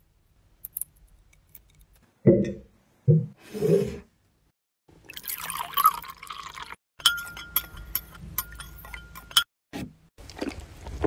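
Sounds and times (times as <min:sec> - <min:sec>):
water pouring into a glass: 0:05.0 - 0:06.8
sharp clinks on glass: 0:07.0 - 0:09.5.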